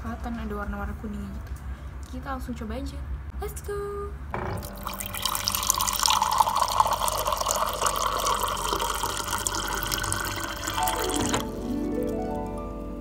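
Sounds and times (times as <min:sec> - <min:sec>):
tap water pouring into mug: 0:04.7 - 0:11.6.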